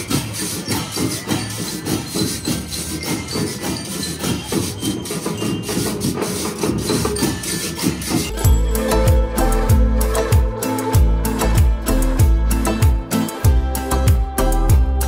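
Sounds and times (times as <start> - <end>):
marching band drums: 0.0 - 14.9
ringing high bell notes: 8.3 - 10.9.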